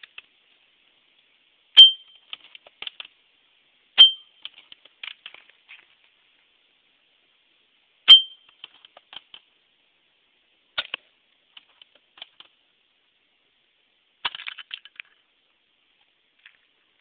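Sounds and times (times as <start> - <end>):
sharp clicks and clatters: 2.2 - 3.2, 4.4 - 6.0, 8.5 - 9.5, 10.8 - 12.6, 14.2 - 15.2.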